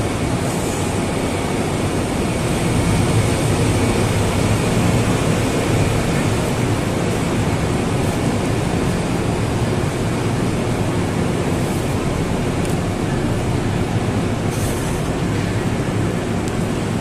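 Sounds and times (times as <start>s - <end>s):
underground train platform rumble: 0.0s - 17.0s.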